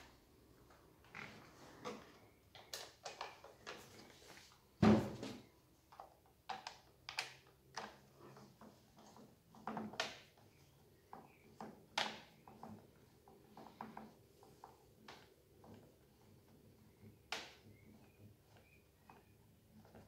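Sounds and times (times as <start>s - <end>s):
heavy thump on workbench: 4.8s - 5.4s.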